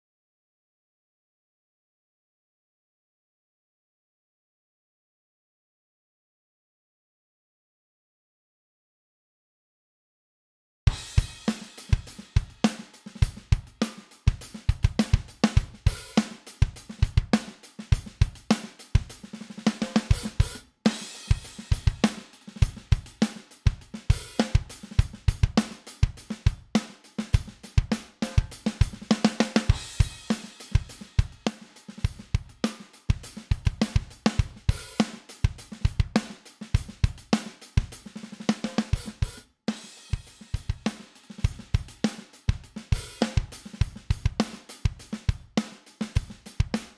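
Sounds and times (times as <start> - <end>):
drum kit groove: 10.9 - 46.9.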